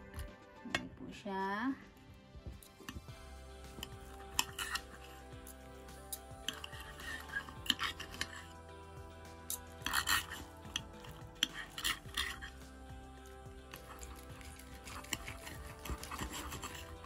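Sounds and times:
knife and fork scraping plate: 3.7s - 8.6s, 9.4s - 12.6s, 13.7s - 17.0s.

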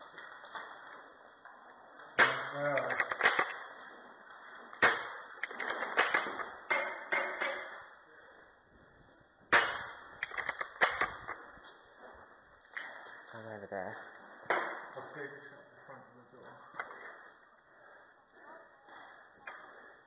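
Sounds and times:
clicks and knocks: 2.0s - 3.8s, 4.4s - 7.9s, 9.5s - 11.7s
airsoft rifle shots: 9.5s - 11.2s.

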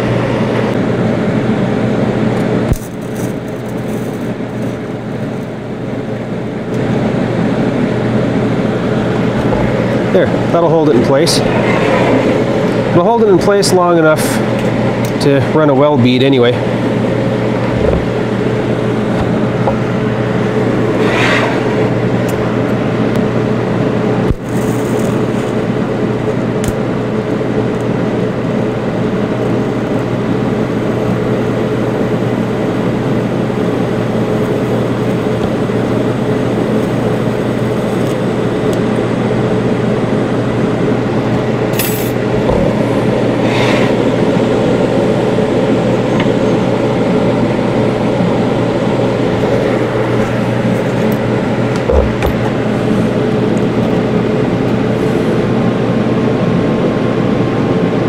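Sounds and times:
welding machine hum and hiss: 0.0s - 11.4s, 12.3s - 21.0s, 21.9s - 58.0s.

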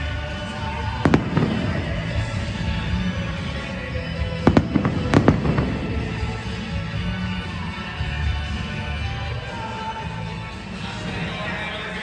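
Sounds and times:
music: 0.0s - 12.0s
fireworks bangs: 0.5s - 7.5s.

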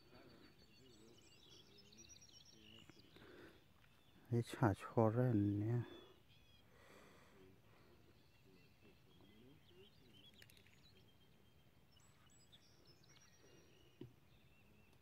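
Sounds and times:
high bird chirps: 0.0s - 4.8s, 8.1s - 15.0s.

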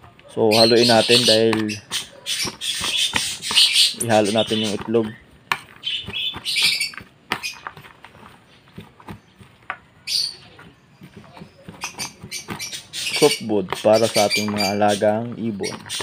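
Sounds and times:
birds squawking and chirping: 0.0s - 16.0s
spoon scraping plastic tray: 0.0s - 16.0s
person speaking: 0.3s - 1.9s, 4.0s - 5.3s, 13.0s - 16.0s.

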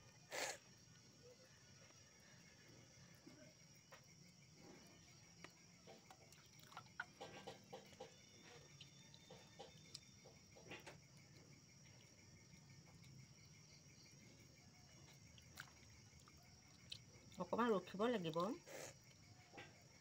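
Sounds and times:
insect chirring: 0.0s - 20.0s.

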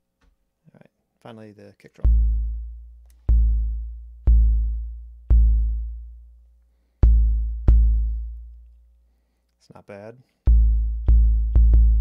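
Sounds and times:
analog kick drum: 2.0s - 6.4s, 7.0s - 8.6s, 10.5s - 12.0s.

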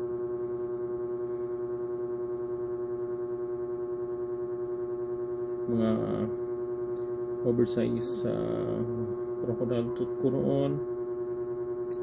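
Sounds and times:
steady humming drone: 0.0s - 12.0s.

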